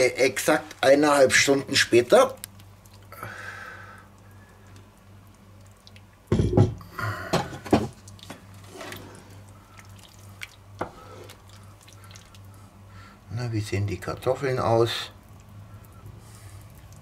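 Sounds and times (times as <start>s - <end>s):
stew bubbling: 1.2s - 13.3s, 14.2s - 17.0s
thumps and clatters: 6.3s - 8.4s.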